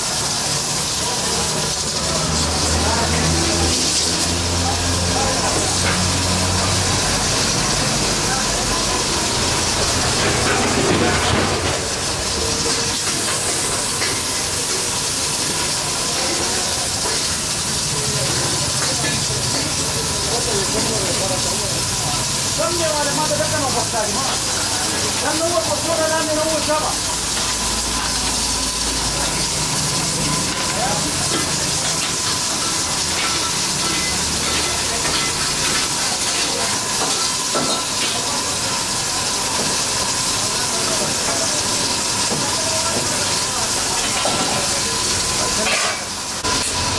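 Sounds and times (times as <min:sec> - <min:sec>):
steam hissing from pressure cookers: 0:00.0 - 0:46.9.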